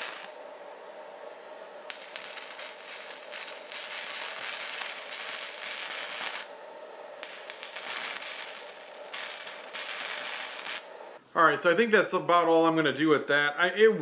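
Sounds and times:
welding arc crackling and sizzling: 0.0 - 0.4, 1.9 - 6.6, 7.2 - 11.2.

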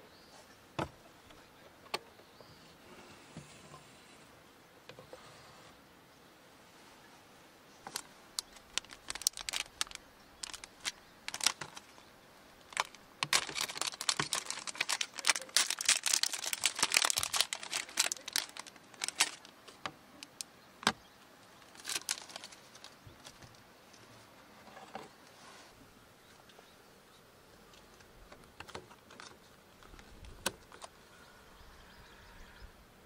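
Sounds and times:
plastic packaging crinkling: 7.9 - 12.0, 12.6 - 20.4, 21.6 - 23.5.

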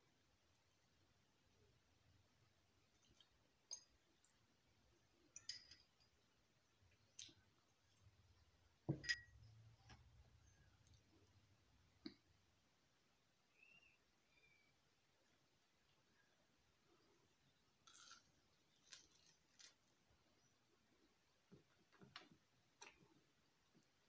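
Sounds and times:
fork clinking on glass dishes: 8.9 - 9.4.

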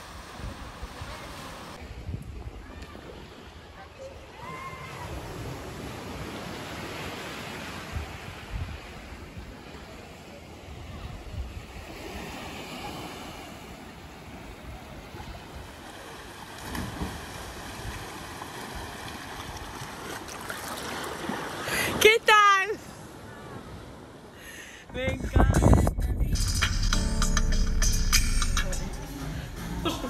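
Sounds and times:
small sea waves washing on beach: 0.0 - 22.0
wind gusting on microphone: 7.8 - 9.6, 24.9 - 26.9.

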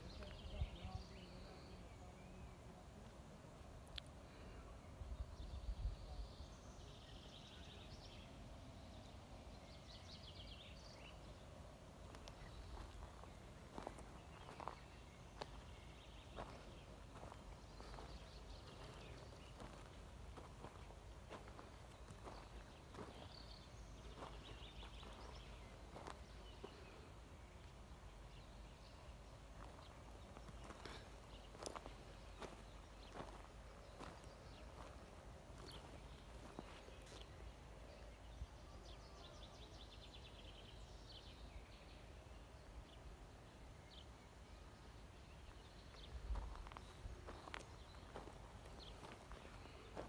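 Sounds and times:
faint birdsong trills: 0.0 - 50.0
footsteps crunching on gravel: 12.1 - 15.7, 16.3 - 26.9, 29.6 - 37.3, 46.0 - 50.0.

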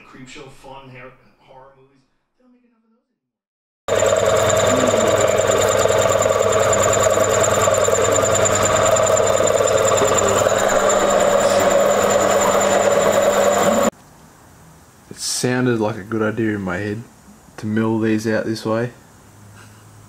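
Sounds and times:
milling machine cutting metal: 3.9 - 13.9.

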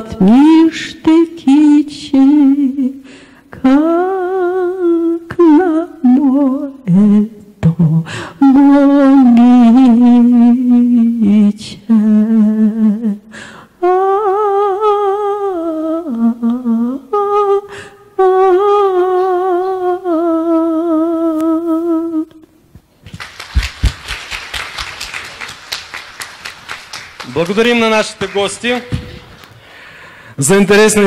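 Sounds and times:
person singing with vibrato: 0.0 - 22.7
audience applauding: 23.0 - 29.6.

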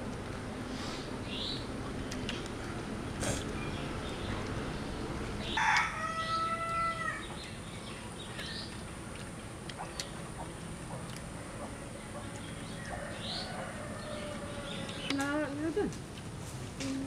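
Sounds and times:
rooster crowing: 5.4 - 7.3, 12.8 - 15.0.

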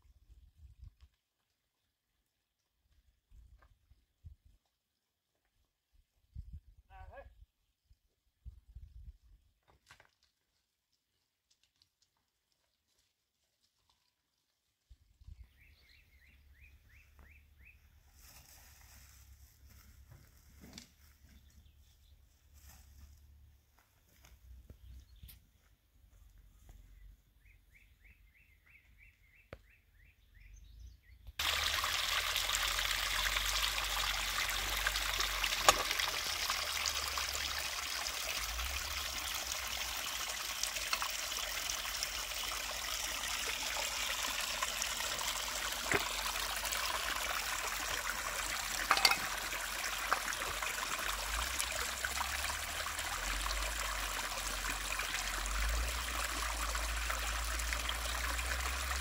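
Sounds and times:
water trickling over rocks: 9.6 - 15.9, 31.4 - 59.0
bird chirping: 26.9 - 31.3.

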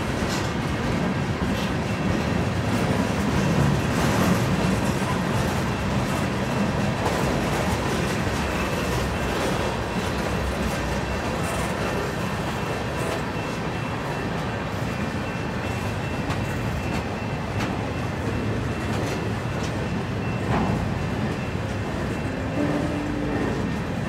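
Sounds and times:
train wheels rumbling on rail: 0.0 - 24.0
faint high ring: 22.1 - 24.0.

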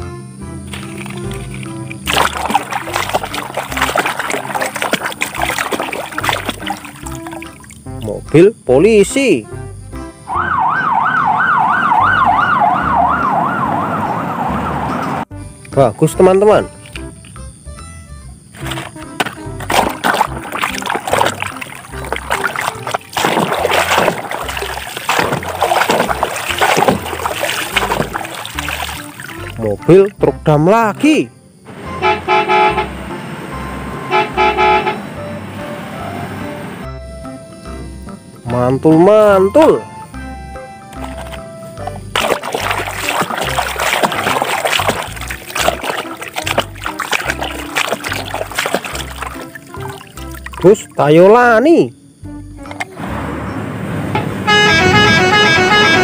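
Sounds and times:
water splashing in a tub: 0.7 - 8.2, 18.5 - 30.1, 41.0 - 51.1.

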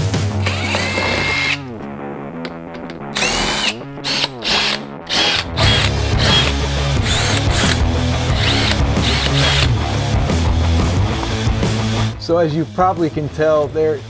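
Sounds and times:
background music: 0.0 - 14.0
cordless drill whining: 0.4 - 1.6, 2.8 - 9.7.

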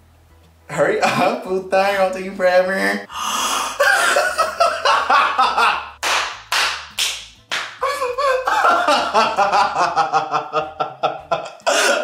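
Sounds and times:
people laughing hysterically: 3.7 - 6.0, 8.5 - 12.0
loud hand claps: 5.9 - 8.0.

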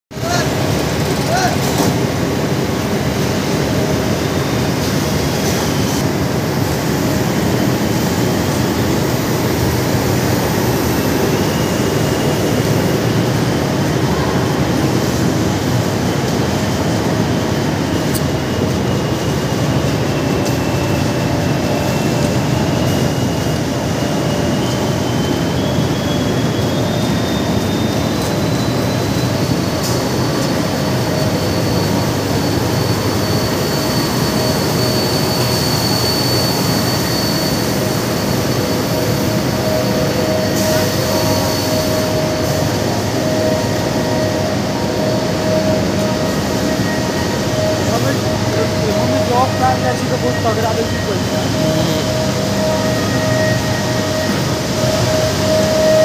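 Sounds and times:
faint high machine whine: 0.2 - 56.0
heavy industrial machinery din: 29.4 - 56.0.

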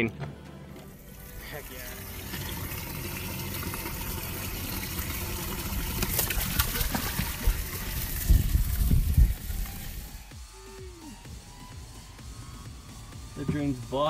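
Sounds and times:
water splashing in livewell: 1.0 - 10.2
heavy low thumps: 7.5 - 11.9.

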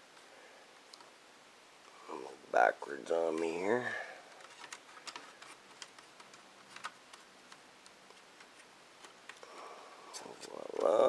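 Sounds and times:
small clicks of plastic and metal: 4.4 - 9.5.

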